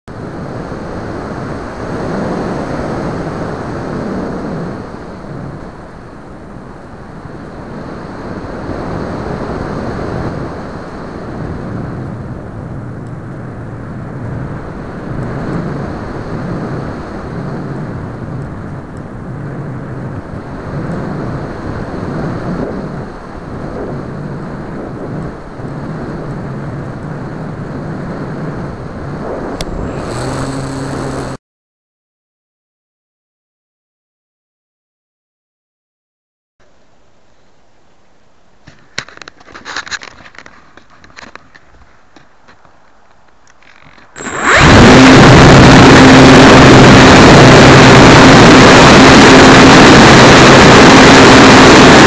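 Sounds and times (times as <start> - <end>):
wind rushing over microphone: 0.1 - 31.4, 43.6 - 52.0.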